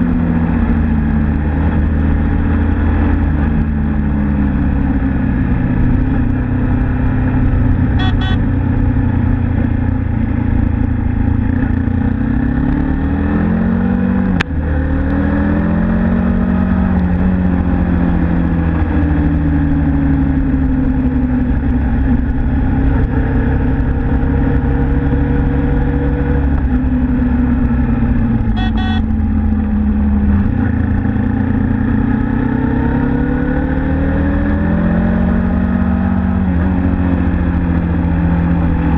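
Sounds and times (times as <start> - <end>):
motorcycle engine running: 0.0 - 33.4
road noise rush: 0.0 - 38.9
high beeping: 8.0 - 8.5, 28.5 - 29.1.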